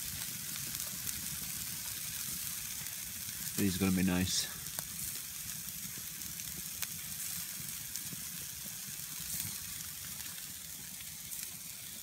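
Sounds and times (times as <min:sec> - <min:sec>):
burgers sizzling on a grill: 0:00.0 - 0:12.0
fire popping: 0:00.0 - 0:12.0.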